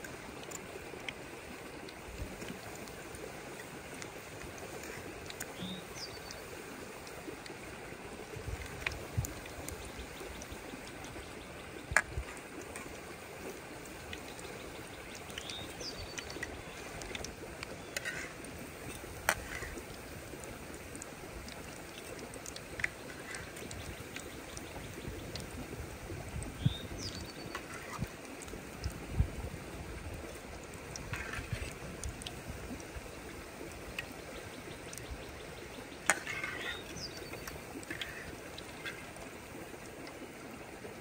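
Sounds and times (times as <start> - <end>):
steady water-like hiss: 0.0 - 41.0.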